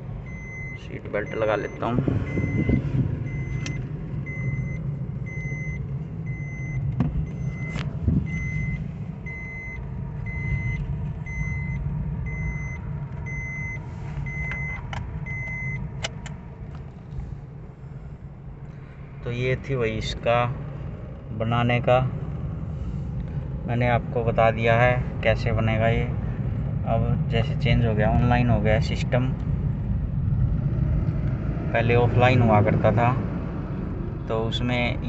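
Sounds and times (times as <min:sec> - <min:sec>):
car engine and tyre rumble: 0:00.0 - 0:35.0
seat belt chime beeping: 0:00.3 - 0:15.8.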